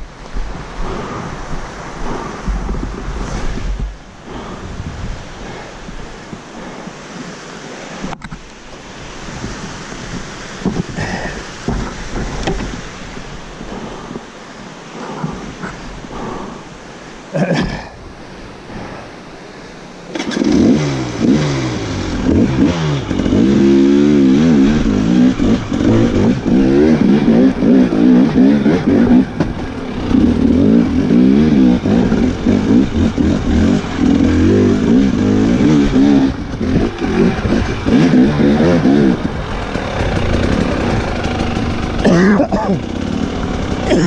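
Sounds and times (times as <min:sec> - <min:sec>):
dirt bike engine revving: 0:20.1 - 0:44.0.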